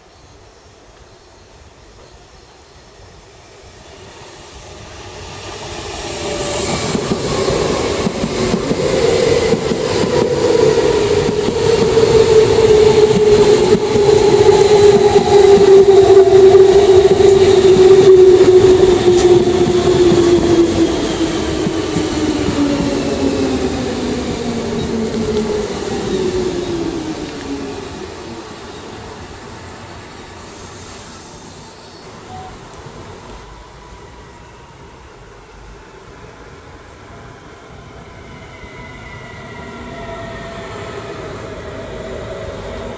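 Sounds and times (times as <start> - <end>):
electric train passing: 0.0 - 42.9.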